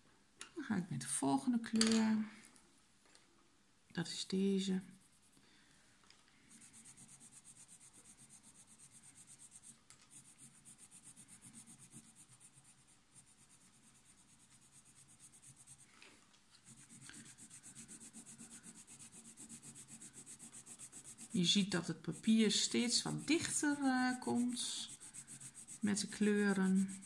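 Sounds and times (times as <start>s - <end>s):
pencil scratching on paper: 6.4s - 15.9s, 16.6s - 27.0s.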